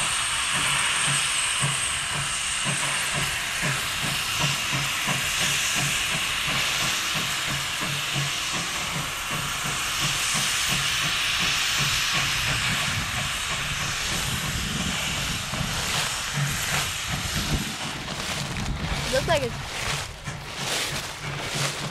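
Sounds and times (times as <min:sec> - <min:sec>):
steam hissing from cylinder cocks: 0:00.0 - 0:21.9
steam locomotive chuffing: 0:00.0 - 0:21.9.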